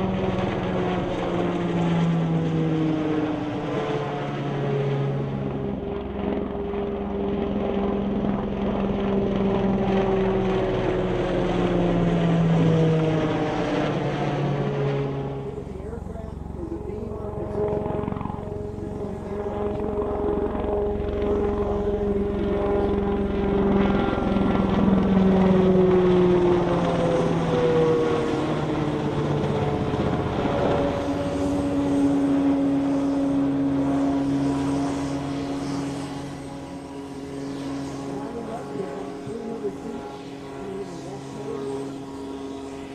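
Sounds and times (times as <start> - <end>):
helicopter flying past: 0.0 - 42.9.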